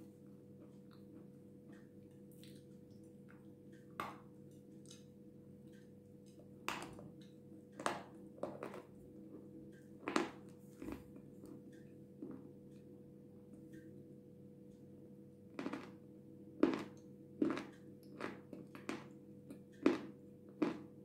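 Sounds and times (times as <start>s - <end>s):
crunchy biting and chewing: 15.6s - 16.0s, 16.6s - 19.1s, 19.8s - 21.0s.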